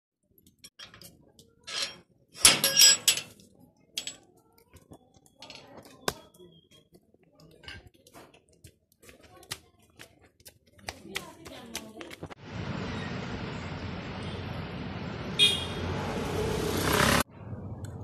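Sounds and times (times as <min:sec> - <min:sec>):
padlock and gate rattling: 0:00.6 - 0:04.3.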